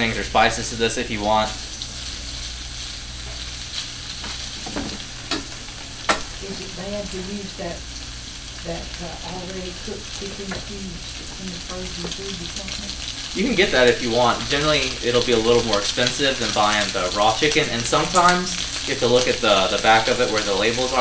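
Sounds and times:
chicken sizzling in a skillet: 0.0s - 21.0s.

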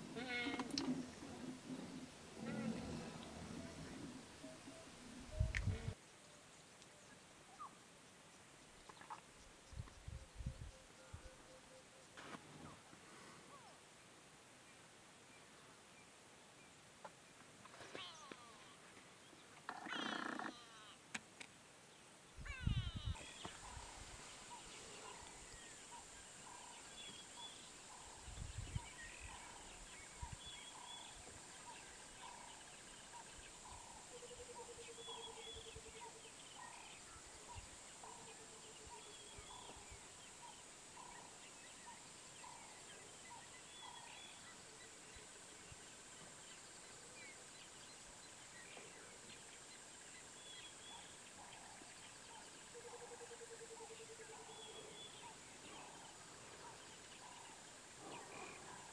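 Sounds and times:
high insect hiss: 22.6s - 52.8s.

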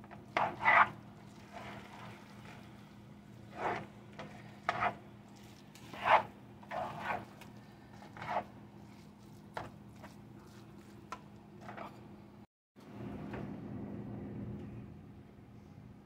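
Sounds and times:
spatula scraping frying pan: 0.2s - 2.7s, 3.4s - 8.6s
steady low hum: 11.9s - 16.0s.

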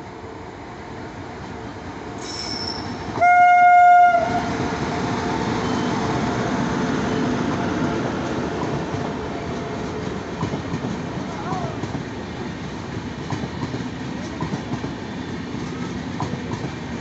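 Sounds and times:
train coaches rumbling past: 0.0s - 17.0s
train horn blast: 2.7s - 4.5s.

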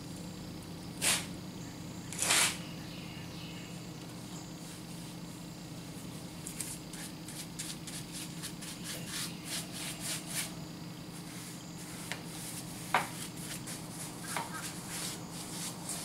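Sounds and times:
paintbrush scratchy strokes on wood: 6.5s - 16.0s.

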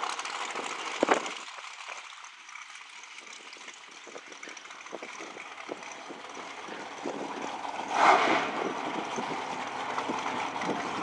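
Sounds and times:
wind on microphone: 3.3s - 11.0s
outdoor rushing noise: 5.0s - 11.0s.

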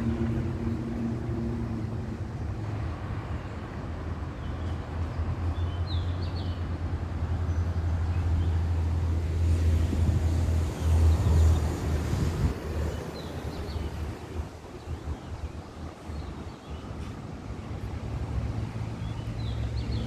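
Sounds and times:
diesel locomotive droning: 0.0s - 4.1s.

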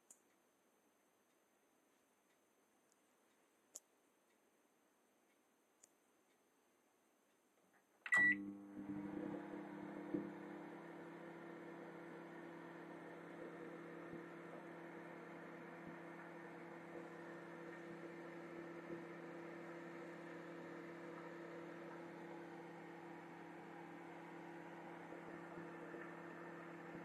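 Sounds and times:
microwave oven humming: 8.1s - 27.0s.

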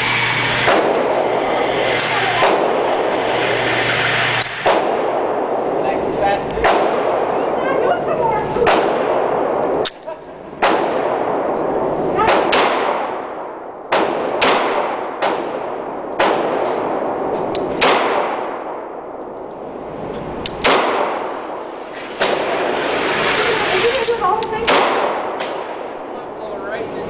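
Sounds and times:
pistol shots ringing indoors: 4.6s - 5.4s, 6.6s - 7.3s, 10.6s - 18.9s, 20.6s - 21.6s, 24.6s - 25.9s.

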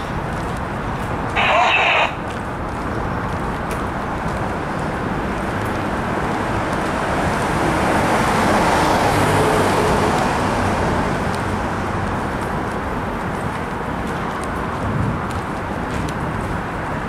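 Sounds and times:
road traffic noise: 0.0s - 17.0s
vehicle passing: 0.0s - 17.0s.

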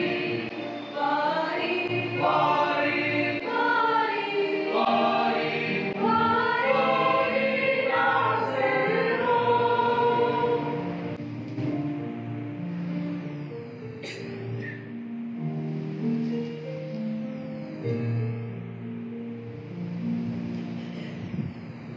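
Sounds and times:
mixed choir singing a carol: 0.0s - 11.2s.

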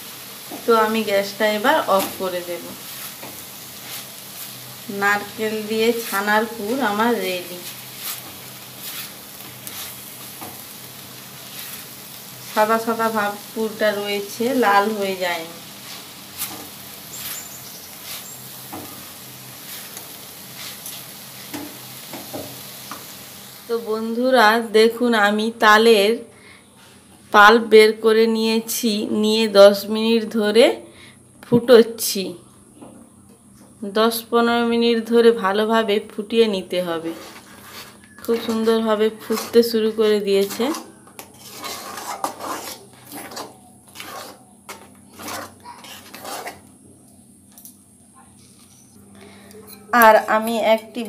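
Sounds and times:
sizzling hiss: 0.0s - 26.5s, 34.1s - 51.0s
spatula scraping a pan: 1.8s - 15.1s, 15.7s - 23.1s, 37.0s - 46.7s.

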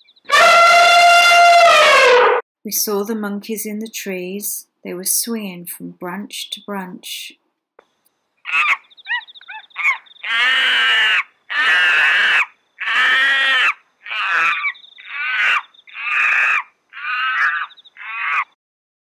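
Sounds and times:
monkey screeching calls: 8.5s - 18.6s.

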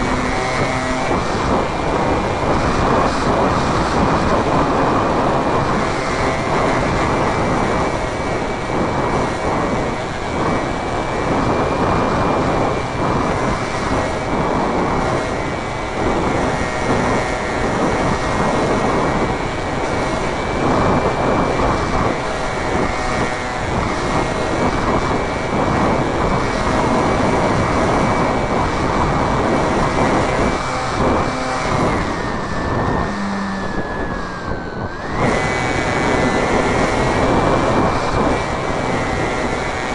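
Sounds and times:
high motor whine: 0.0s - 39.9s
wind rush: 0.0s - 39.9s.

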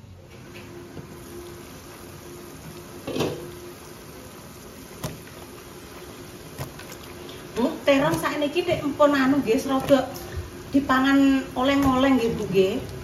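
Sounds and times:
stew bubbling in a pot: 0.7s - 13.0s.

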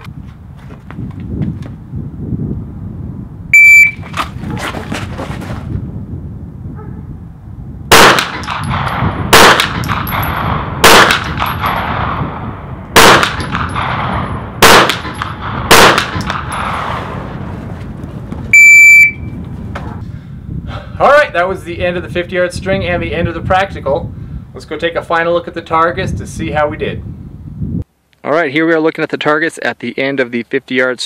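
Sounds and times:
shot timer beep: 3.6s - 4.0s, 18.6s - 19.4s
pistol shots: 7.9s - 12.2s, 12.9s - 17.2s.

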